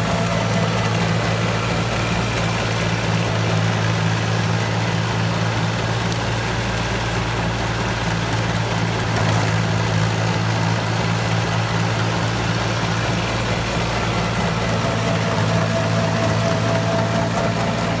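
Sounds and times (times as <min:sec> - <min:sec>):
diesel tractor engine under load: 0:00.0 - 0:18.0
rotavator tilling soil: 0:00.0 - 0:18.0.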